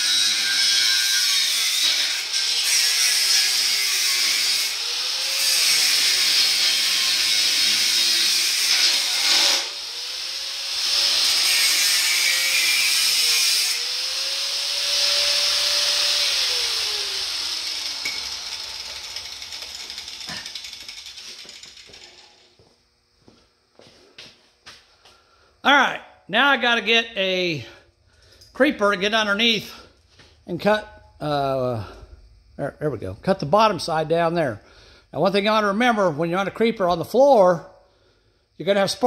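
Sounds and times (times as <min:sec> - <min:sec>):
angle grinder cutting steel: 0:00.0 - 0:22.2
grinder winding down: 0:04.5 - 0:22.7.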